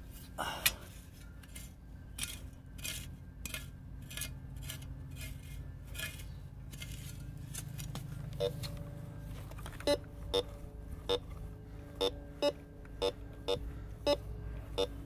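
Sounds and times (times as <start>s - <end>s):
spade stabbing and scraping soil: 1.4s - 8.0s
metal detector beep: 11.1s - 11.3s, 12.0s - 14.2s, 14.8s - 15.0s.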